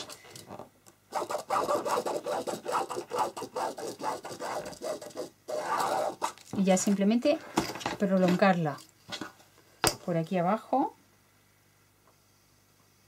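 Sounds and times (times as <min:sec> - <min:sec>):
pen scratching on fabric: 0:01.1 - 0:06.4.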